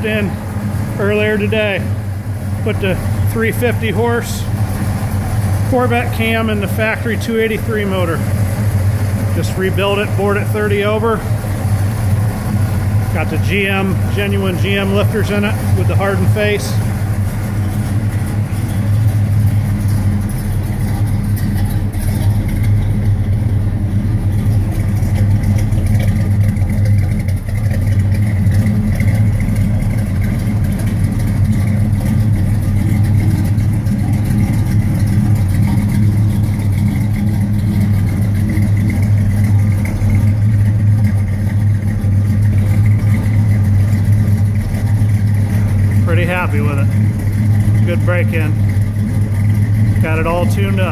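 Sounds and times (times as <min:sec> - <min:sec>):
car engine idling: 0:00.0 - 0:50.9.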